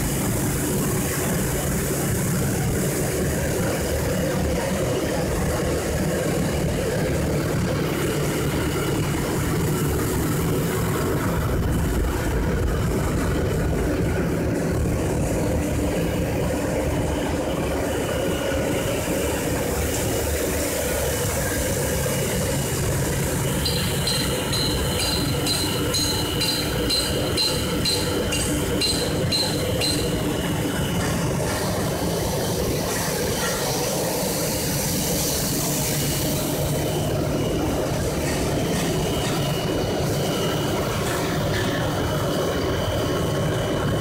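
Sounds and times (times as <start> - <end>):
rhythmic high clinking: 23.5 - 31.5.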